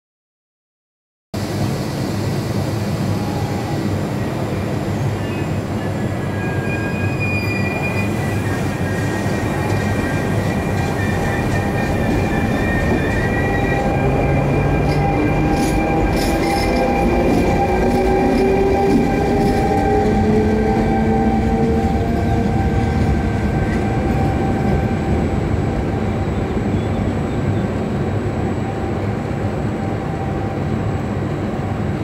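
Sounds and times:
train rumble: 1.4 - 32.0
train wheels squealing: 3.1 - 25.3.

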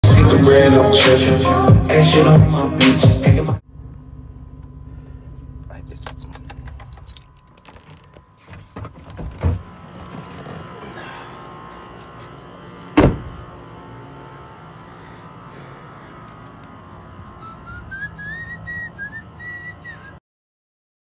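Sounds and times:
engine idling: 3.6 - 20.1
vehicle door clicks and knocks: 6.5 - 9.6, 13.0 - 13.4
vehicle door slamming: 12.9 - 13.4.

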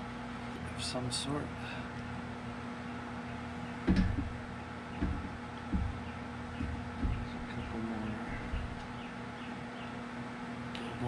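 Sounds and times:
low hum: 0.0 - 11.0
bones knocking on baking tray: 3.8 - 7.7.

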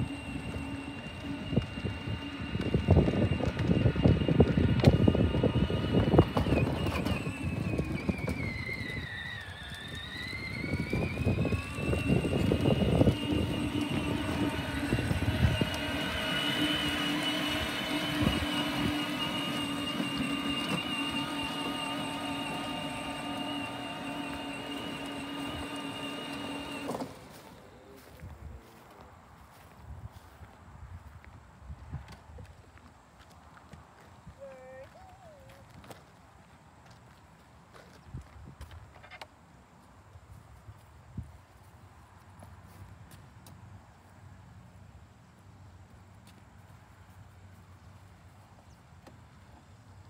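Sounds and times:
electric toy motor whining: 0.0 - 27.4
clattering over pavement: 0.4 - 27.4.

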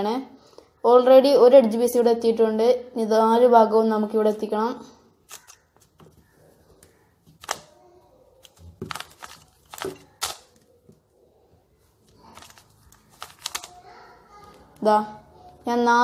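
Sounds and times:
puzzle cube clicking: 5.3 - 6.0, 7.3 - 7.7, 8.4 - 10.7, 12.1 - 13.8.

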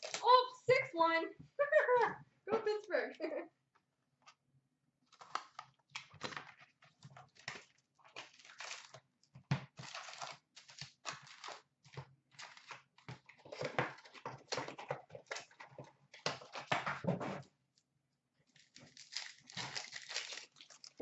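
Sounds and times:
plastic wrap and cardboard crinkling: 5.1 - 17.2, 18.4 - 21.0.

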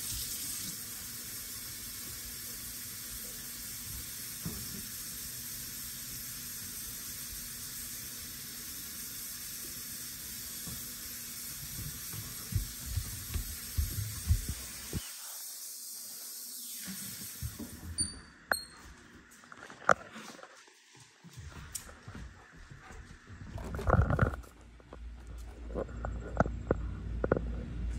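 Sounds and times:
tap running into a sink: 3.8 - 5.0, 10.5 - 15.0, 16.8 - 18.6.

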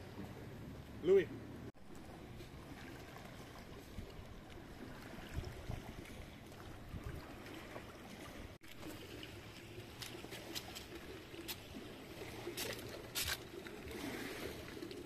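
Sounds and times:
water lapping at shore: 0.0 - 15.0.

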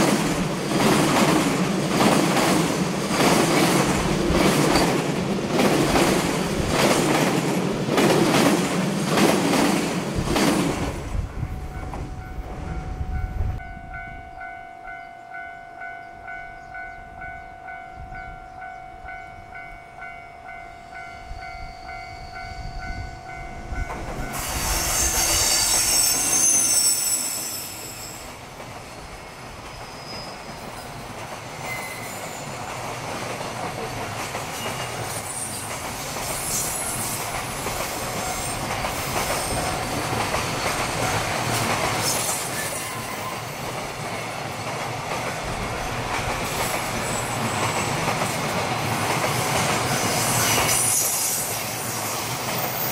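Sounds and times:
freight train passing: 0.0 - 52.9
train wheel squeal: 20.8 - 32.8, 34.5 - 43.8, 46.4 - 48.1, 49.8 - 52.9.

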